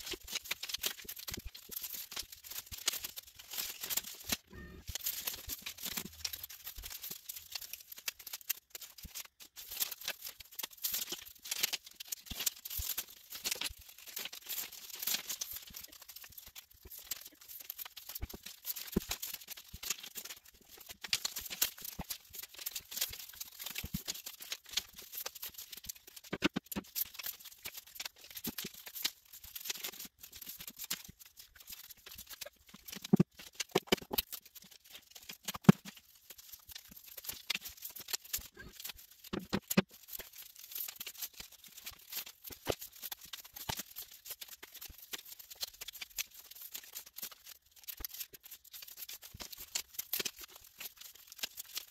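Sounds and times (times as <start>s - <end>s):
paper rustling and crinkling: 0.0s - 51.9s.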